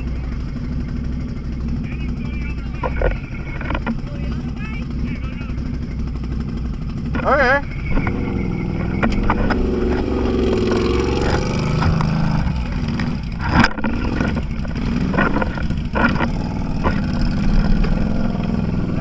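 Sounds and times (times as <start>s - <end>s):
off-road vehicle engine running: 0.0s - 19.0s
sharp knocks and rattles: 2.5s - 5.0s, 5.6s - 19.0s.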